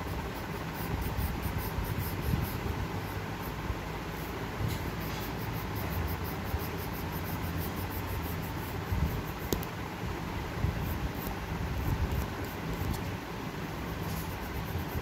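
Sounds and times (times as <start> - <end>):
steady low rumble: 0.0 - 15.0
sharp click: 9.5 - 9.7.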